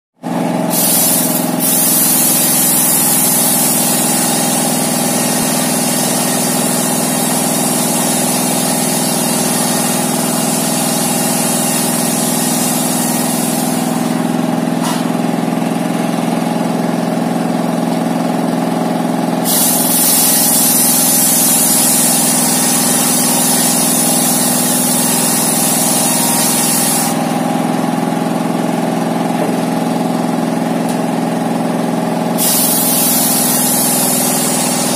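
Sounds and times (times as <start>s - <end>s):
diesel engine running: 0.2s - 34.9s
circular saw cutting timber: 0.8s - 15.2s, 19.5s - 27.5s, 32.4s - 34.9s.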